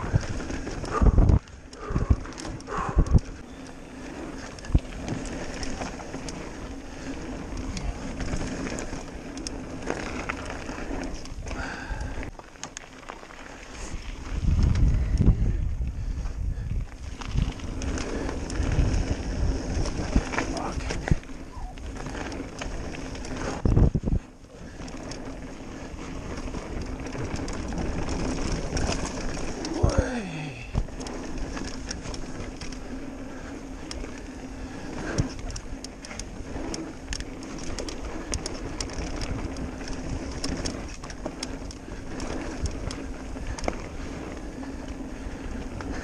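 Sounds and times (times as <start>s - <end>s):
wind on microphone: 0.0s - 8.8s, 13.8s - 32.9s
tyres rumbling on dirt: 0.0s - 15.6s, 16.8s - 46.0s
bike rattling: 0.0s - 46.0s.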